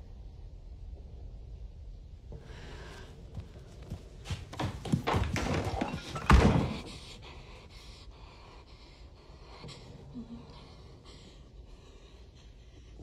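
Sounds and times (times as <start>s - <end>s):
door banging shut: 4.8s - 7.1s.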